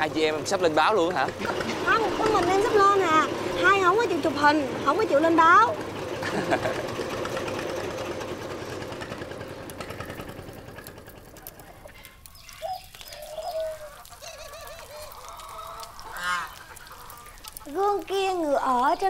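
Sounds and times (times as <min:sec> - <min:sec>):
waterfowl honking: 0:11.7 - 0:17.8.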